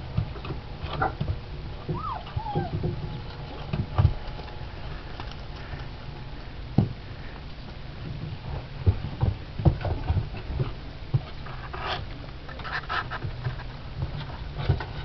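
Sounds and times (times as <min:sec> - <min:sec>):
puppies snuffling: 0:01.9 - 0:07.4.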